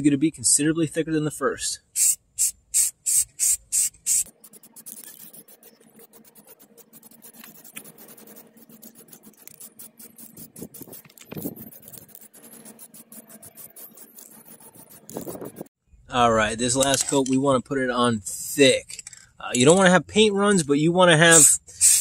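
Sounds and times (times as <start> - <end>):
spray paint hissing: 1.8 - 15.7, 21.3 - 22.0
aerosol can rattling: 2.0 - 5.6, 9.0 - 12.8, 21.8 - 22.0.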